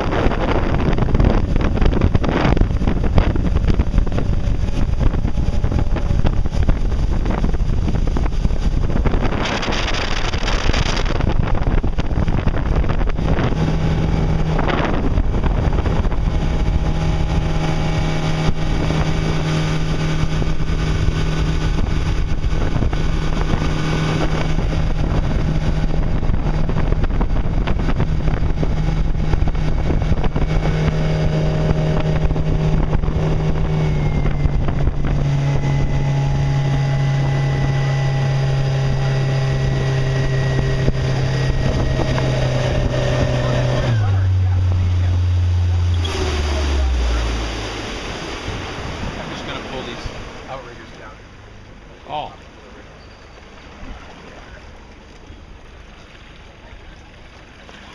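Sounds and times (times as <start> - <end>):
boat engine drone: 0.0 - 57.9
rushing water hiss: 46.0 - 50.8.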